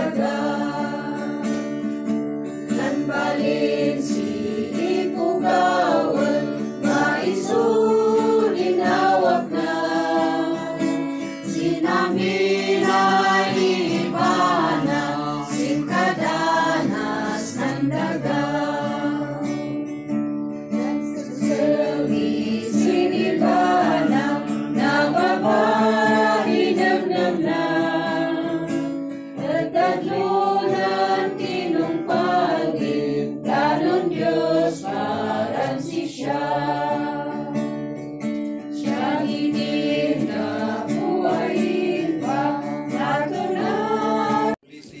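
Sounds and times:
group of people singing: 0.0 - 20.0, 20.7 - 38.0, 38.6 - 45.0
strummed acoustic guitar: 0.0 - 45.0.

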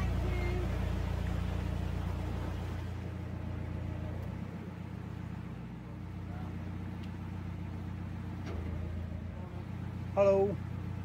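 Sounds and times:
boat diesel engine running: 0.0 - 11.0.

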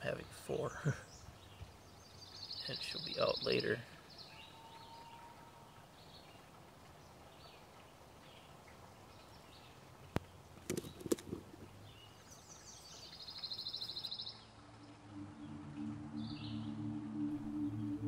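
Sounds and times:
small birds chirping: 0.0 - 15.2
sharp clicks and knocks: 10.2 - 11.5.

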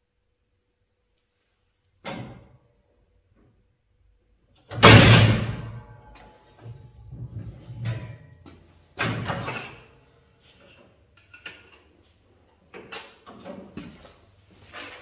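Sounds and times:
sheet metal clanks and thuds: 4.7 - 9.9.

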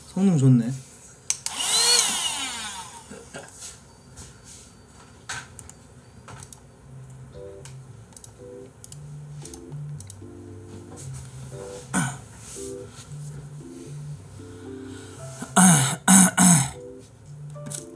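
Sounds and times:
soft background music: 6.0 - 17.9
computer keyboard or mouse clicks: 8.1 - 10.2.

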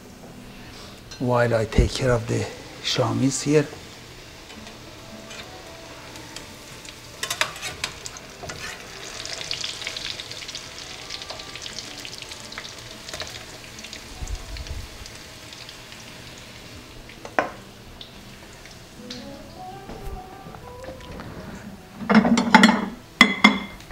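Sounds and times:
patties sizzling in a pan: 1.8 - 19.3.

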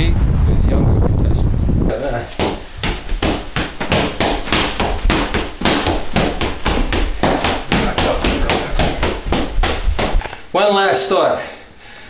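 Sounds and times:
gloves punching focus mitt: 2.4 - 10.2.

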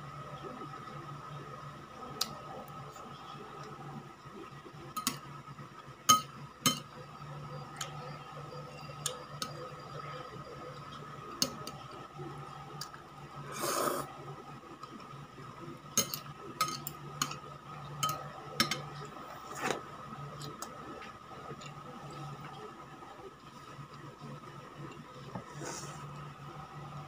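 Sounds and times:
steady hum: 0.0 - 27.0
slurping noodles: 13.5 - 14.1.

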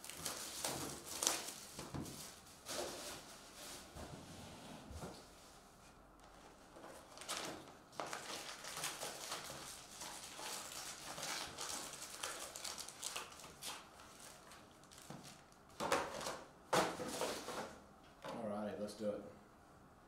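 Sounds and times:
rustling and crinkling of packs: 0.0 - 4.0, 6.2 - 17.8.

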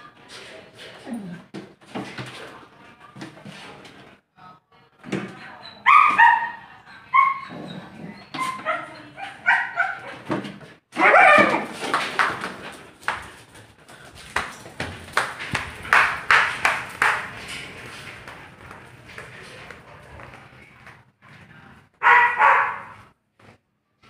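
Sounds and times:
dogs yipping and whining: 5.6 - 10.3
dogs barking and yelping: 5.6 - 10.4, 11.0 - 11.8, 22.0 - 23.0.

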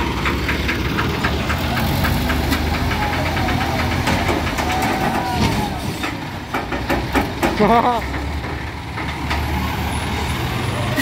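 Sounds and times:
diesel crane engines knocking: 0.0 - 11.0.

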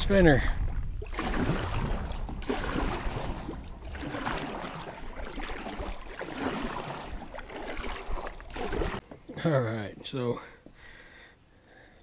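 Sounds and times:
low wind rumble on microphone: 0.0 - 4.2
kayak paddle splashing through water: 0.6 - 9.1.

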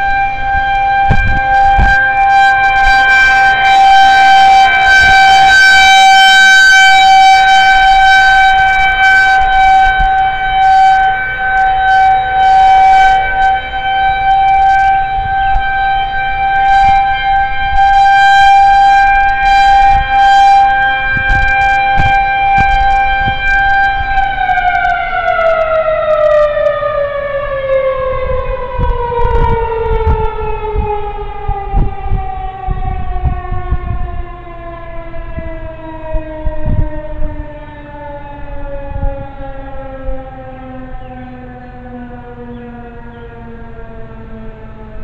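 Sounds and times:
warning siren winding down: 0.0 - 45.0
low thumps: 21.1 - 23.6.

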